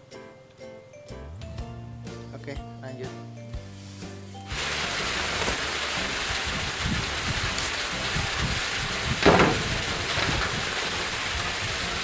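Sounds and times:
heavy rain hissing: 3.8s - 12.0s.

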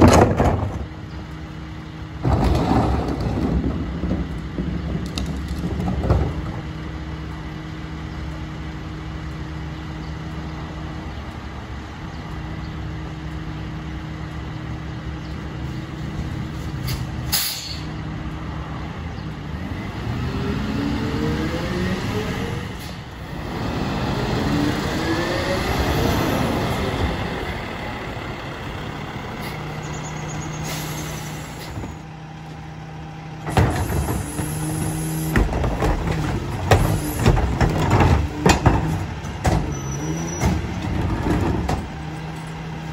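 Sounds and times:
air brake hiss: 16.8s - 17.9s, 30.5s - 31.8s.

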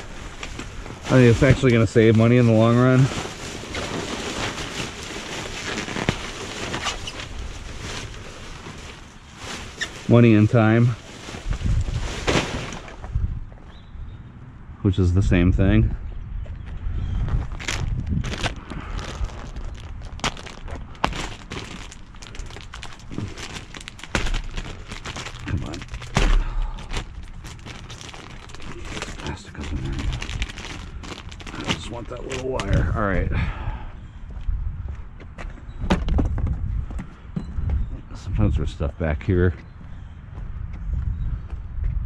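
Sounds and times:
plastic trash bag rustling: 0.0s - 13.1s, 17.5s - 32.9s.

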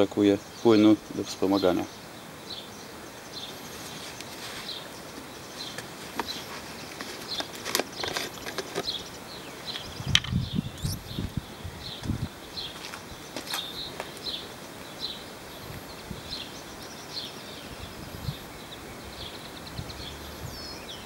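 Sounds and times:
birds chirping: 0.0s - 21.0s
handling knocks and rustles: 3.9s - 9.1s.

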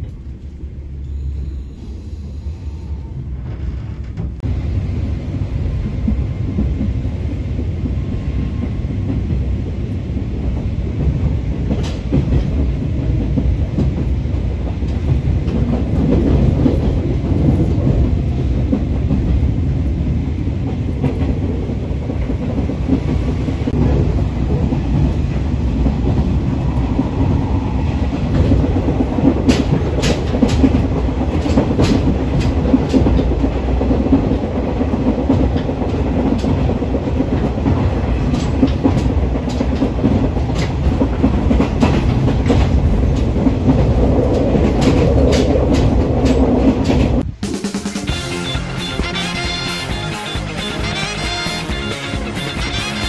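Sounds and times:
train carriage rumble: 0.0s - 53.0s
wheels clacking over rail joints: 28.2s - 47.3s.

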